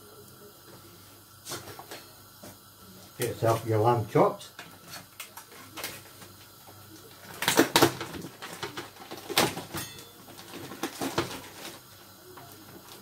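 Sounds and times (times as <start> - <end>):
plastic packaging rustling: 7.0 - 13.0.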